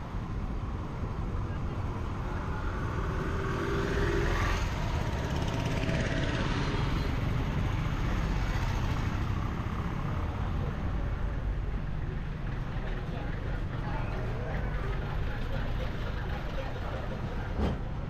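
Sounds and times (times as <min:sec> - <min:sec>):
street rumble: 0:00.0 - 0:18.0
auto-rickshaw driving past: 0:02.0 - 0:10.4.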